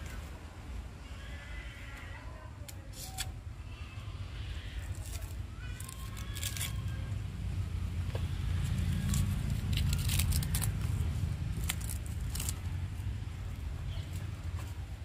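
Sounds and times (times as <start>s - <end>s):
paper tape ripping: 2.7s - 3.4s, 4.9s - 7.0s, 8.6s - 13.0s
steady low rumble: 3.4s - 15.0s.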